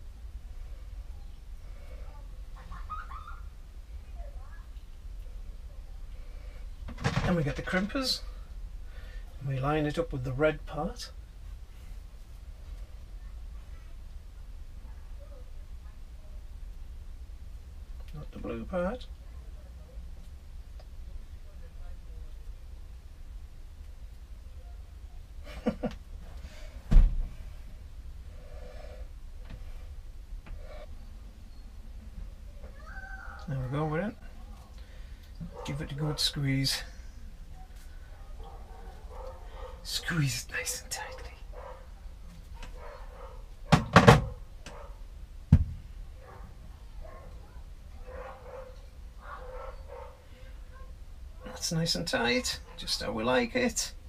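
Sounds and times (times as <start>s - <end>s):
dull thud: 26.9s - 27.4s, 45.5s - 45.9s.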